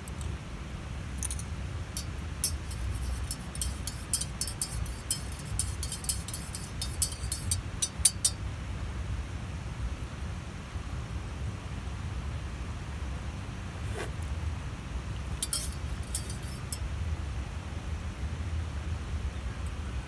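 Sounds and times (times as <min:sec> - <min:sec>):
spoon clinking against mug: 0:01.2 - 0:08.4, 0:15.3 - 0:16.8.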